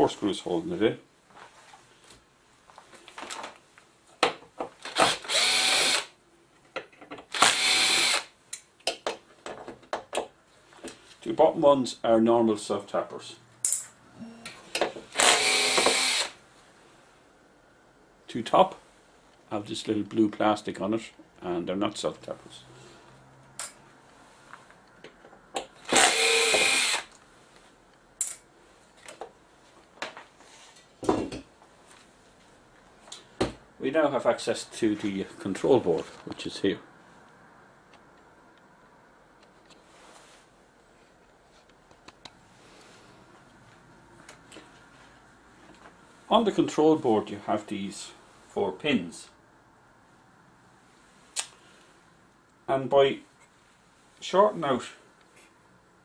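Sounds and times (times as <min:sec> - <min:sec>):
cordless drill running: 0:04.9 - 0:06.1, 0:07.4 - 0:08.3, 0:15.1 - 0:16.4, 0:25.9 - 0:27.1.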